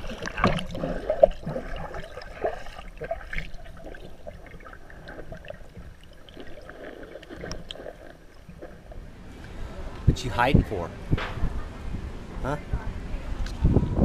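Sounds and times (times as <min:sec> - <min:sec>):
dog paddling splashes: 0:00.0 - 0:09.1
muffled underwater water sloshing: 0:00.0 - 0:09.9.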